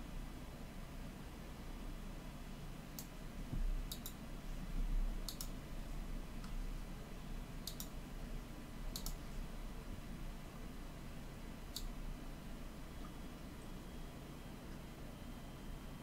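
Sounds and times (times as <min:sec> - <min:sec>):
computer mouse clicking: 0:03.0 - 0:03.2, 0:03.9 - 0:04.2, 0:05.2 - 0:05.6, 0:06.4 - 0:06.6, 0:07.6 - 0:08.0, 0:08.9 - 0:09.2, 0:11.7 - 0:12.0.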